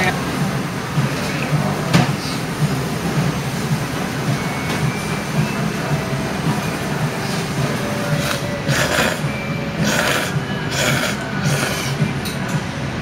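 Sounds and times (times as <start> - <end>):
restaurant din: 0.0 - 13.0.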